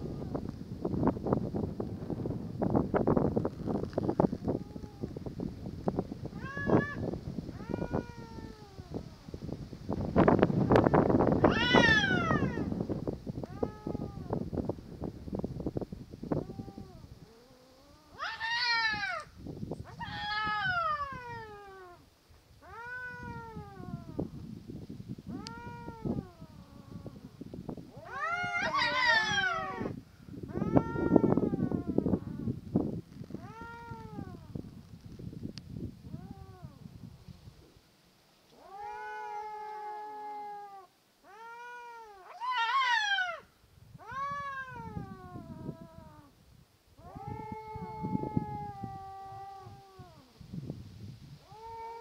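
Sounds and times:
cats yowling: 6.3s - 9.1s, 10.8s - 12.7s, 13.4s - 14.3s, 16.4s - 22.0s, 22.6s - 24.3s, 25.3s - 27.2s, 27.9s - 32.5s, 33.4s - 34.5s, 38.5s - 46.3s, 47.0s - 50.3s, 51.4s - 52.0s
tomcats caterwauling: 6.4s - 7.0s, 11.4s - 12.7s, 16.4s - 22.0s, 22.6s - 24.2s, 25.3s - 27.1s, 28.0s - 32.5s, 38.6s - 43.4s, 44.0s - 46.3s, 47.0s - 50.2s, 51.4s - 52.0s.

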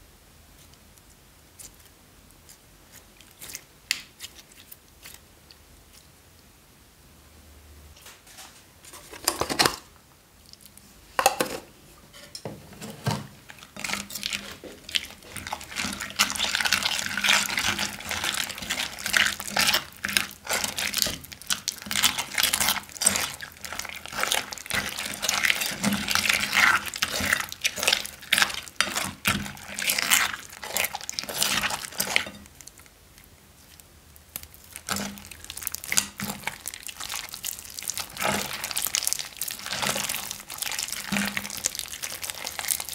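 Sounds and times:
slime squishing and crackling: 1.5s - 6.1s, 13.4s - 42.9s.

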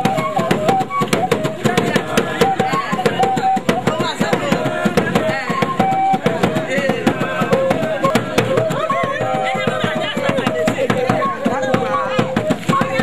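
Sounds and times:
fast drumming: 0.0s - 13.0s
wind instruments playing melody: 0.0s - 13.0s.

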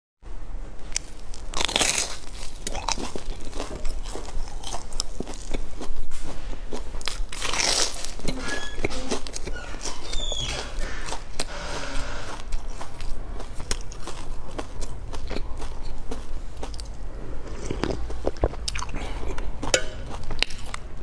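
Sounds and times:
crunchy bites into fried bun: 0.9s - 11.6s
close-up chewing with crackles: 0.9s - 21.0s.

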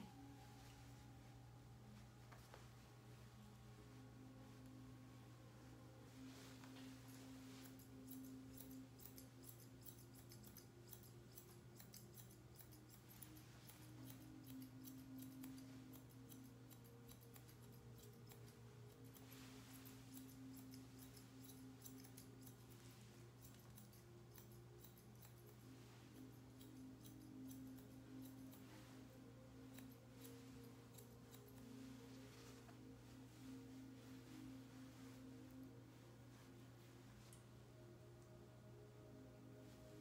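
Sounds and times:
grooming shears snipping: 6.6s - 33.6s.

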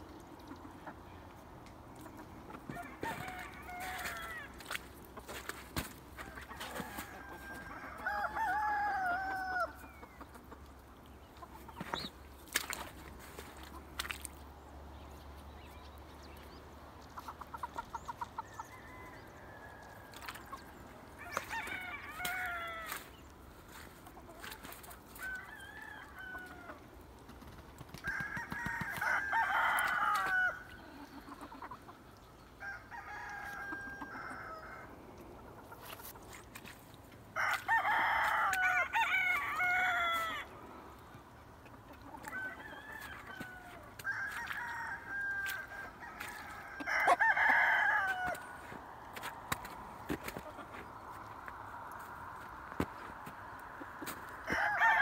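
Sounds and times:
roosters crowing: 2.6s - 10.1s, 18.5s - 24.5s, 25.1s - 26.9s, 28.0s - 31.6s, 32.6s - 35.0s, 37.3s - 40.7s, 42.1s - 51.1s, 52.0s - 55.0s.

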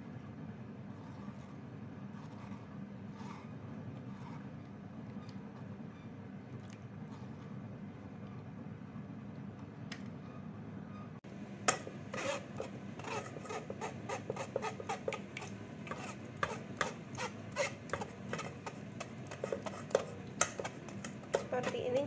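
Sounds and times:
steady low hum: 0.0s - 22.0s
metal ladle scraping a mesh sieve: 11.7s - 22.0s.

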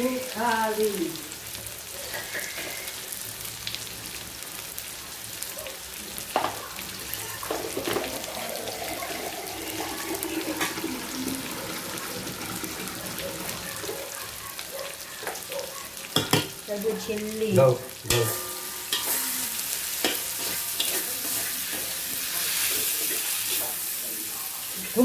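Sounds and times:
frying sizzle in a wok: 0.0s - 25.0s
water running from a tap: 6.9s - 14.0s.

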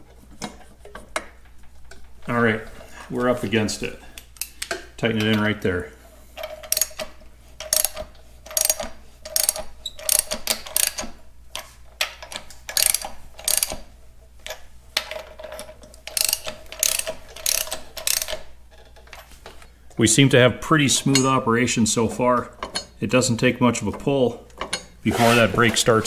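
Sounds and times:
ratchet wrench clicking: 6.7s - 7.0s, 7.6s - 11.1s, 12.7s - 13.8s, 16.1s - 18.5s.

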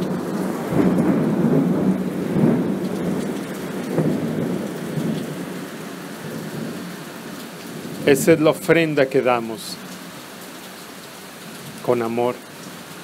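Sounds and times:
low rolling thunder: 0.0s - 6.9s
steady rain: 0.0s - 13.0s.

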